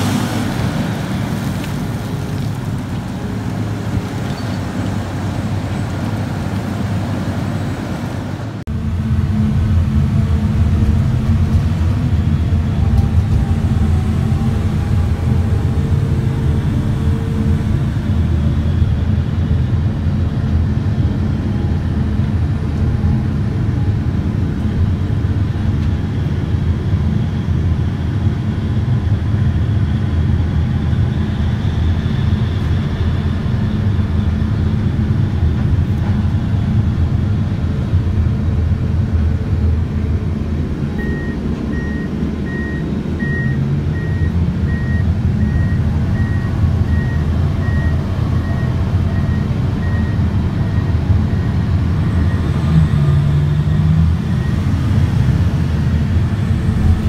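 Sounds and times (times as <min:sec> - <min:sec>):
heavy engines running: 0:00.0 - 0:57.0
reversing alarm beeps: 0:41.0 - 0:52.9.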